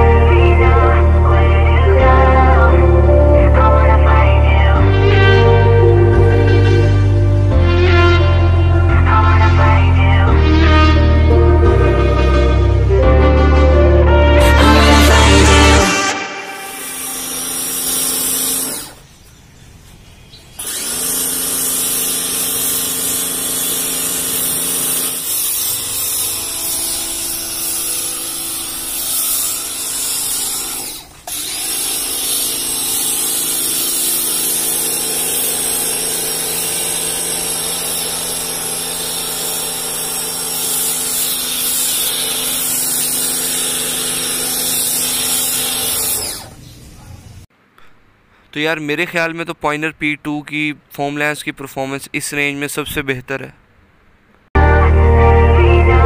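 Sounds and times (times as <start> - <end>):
pressure washer motor humming: 14.4 - 19.0, 20.6 - 46.8.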